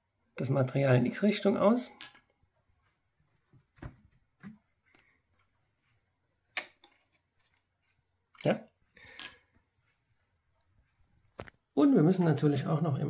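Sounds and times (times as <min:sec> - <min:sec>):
metal clicks and knocks: 0:01.9 - 0:02.3.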